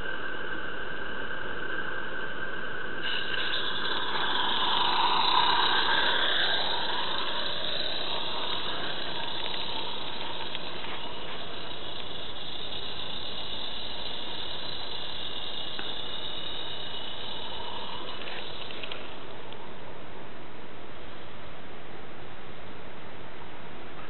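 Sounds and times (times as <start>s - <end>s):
model steam locomotive hissing: 3.0s - 19.8s.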